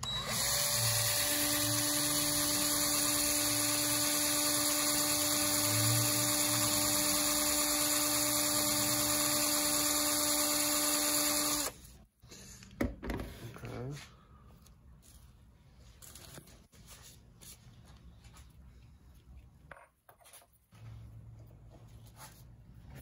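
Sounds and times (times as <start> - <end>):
cordless drill whining: 0.0 - 11.8.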